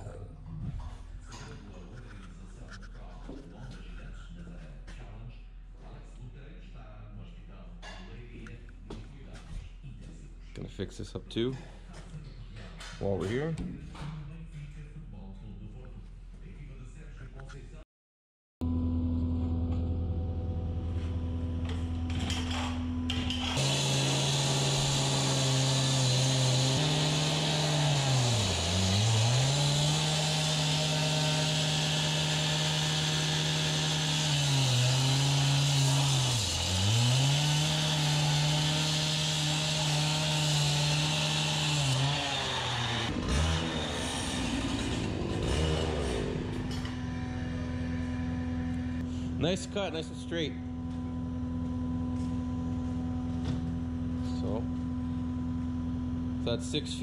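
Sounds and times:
cut-off saw grinding steel: 21.5 - 50.5.

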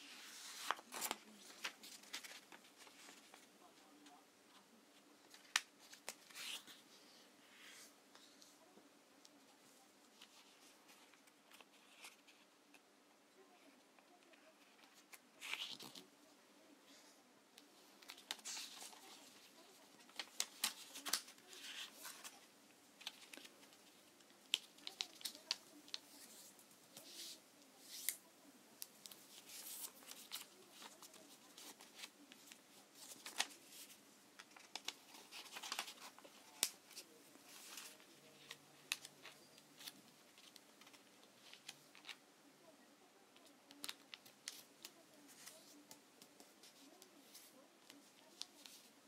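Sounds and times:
paper rustling and creasing: 0.0 - 4.2, 5.2 - 8.5, 10.1 - 12.8, 14.0 - 16.1, 17.8 - 28.2, 28.9 - 42.2.

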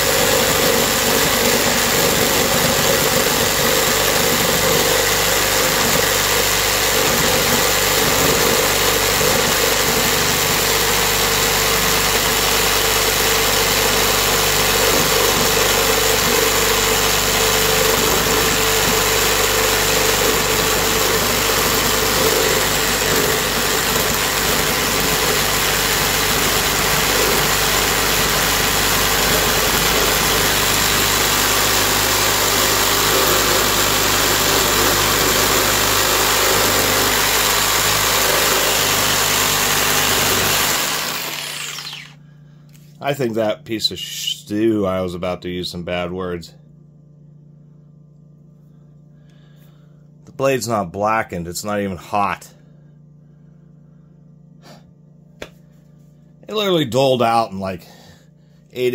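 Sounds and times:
reciprocating saw cutting wood: 0.0 - 42.2.

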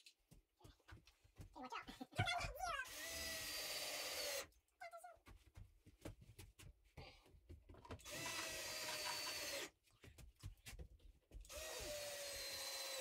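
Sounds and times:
cordless drill driving into wood: 2.8 - 4.5, 8.0 - 9.7, 11.5 - 13.0.

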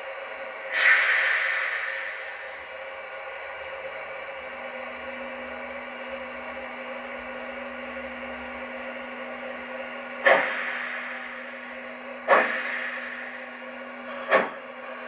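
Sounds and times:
loud noisy burst: 0.7 - 3.2, 10.2 - 13.7
steady low tone: 0.7 - 4.5, 10.2 - 14.4.

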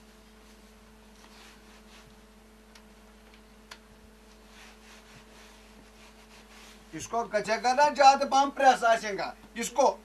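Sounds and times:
faint electrical hum: 0.0 - 10.0
soft clicks: 2.7 - 3.9.

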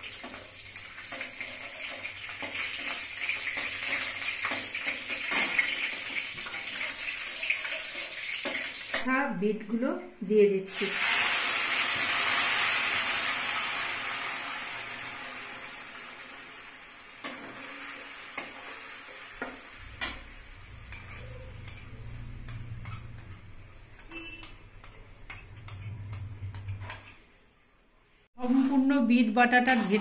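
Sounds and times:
paste sizzling in hot oil: 0.0 - 9.0, 10.7 - 27.3, 29.5 - 30.0
metal utensils scraping steel pan: 20.0 - 27.3, 28.4 - 30.0.

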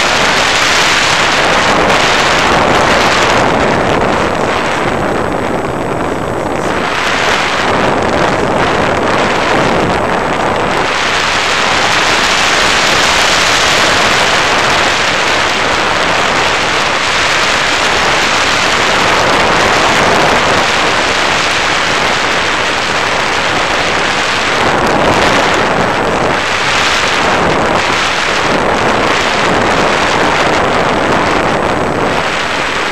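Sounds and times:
wind rushing over microphone: 0.0 - 32.9.

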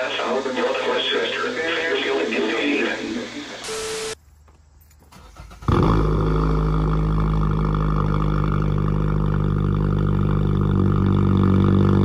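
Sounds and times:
car engine starting and idling: 5.1 - 11.0.

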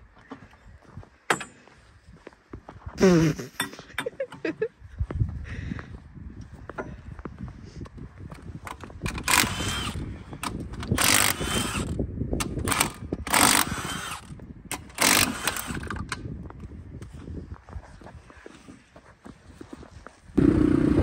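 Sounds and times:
tool clicks and clanks: 1.3 - 1.6, 3.5 - 4.5, 8.3 - 16.3.

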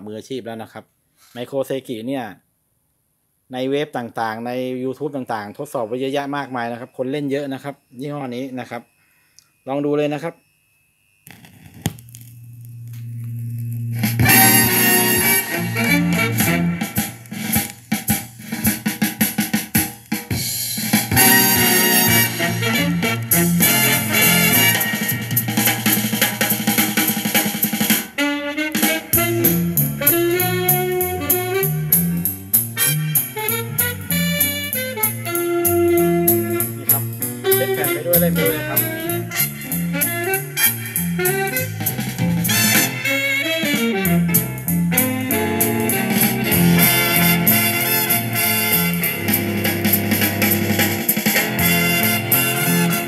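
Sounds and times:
instrumental music from record player: 11.0 - 53.0.

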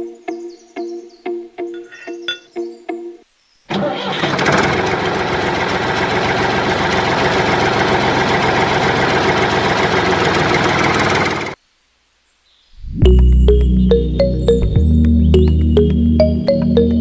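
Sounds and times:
toy tractor motor droning: 3.7 - 11.6.

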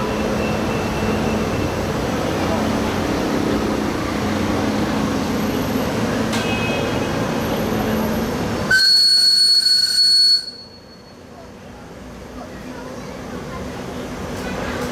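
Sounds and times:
steam locomotive whistle: 8.7 - 11.0.

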